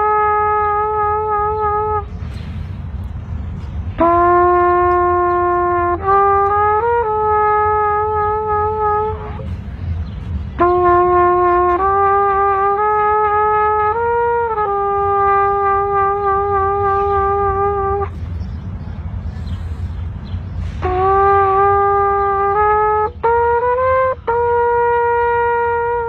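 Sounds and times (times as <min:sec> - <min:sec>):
solo brass horn melody: 0:00.0 - 0:02.2, 0:04.0 - 0:09.5, 0:10.6 - 0:18.2, 0:20.6 - 0:26.0
steady low rumble: 0:00.0 - 0:26.0.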